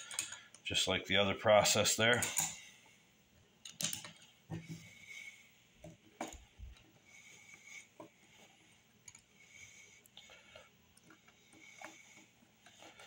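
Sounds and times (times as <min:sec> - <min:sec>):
small metal screws clicking: 0:00.0 - 0:00.6, 0:03.6 - 0:04.3.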